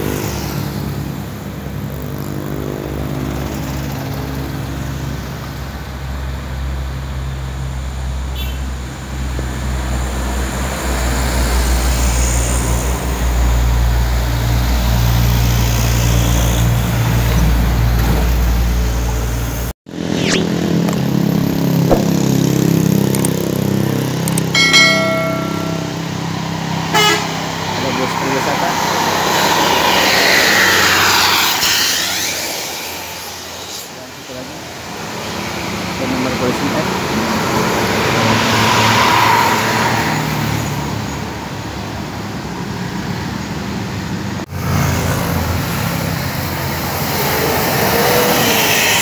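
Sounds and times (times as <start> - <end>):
diesel truck engines passing: 0.0 - 24.5, 25.9 - 49.0
multi-tone vehicle horn: 8.3 - 8.7, 26.8 - 27.4.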